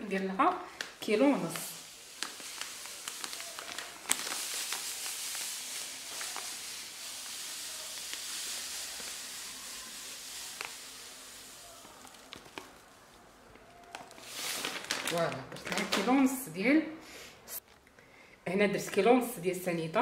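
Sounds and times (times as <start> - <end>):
sugar pouring into glass bowl: 1.0 - 14.9.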